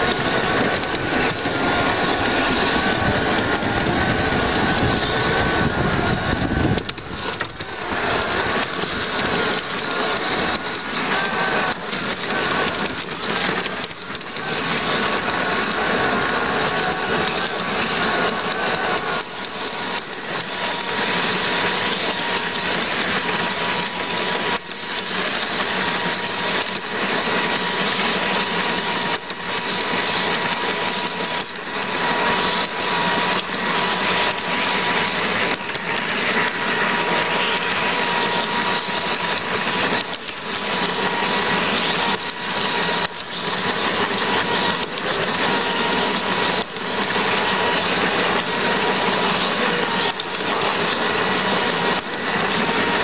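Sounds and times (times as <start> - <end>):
faint steady whine: 0.0 - 53.0
model train motor whirring: 0.0 - 53.0
wheels rolling on rails: 0.0 - 53.0.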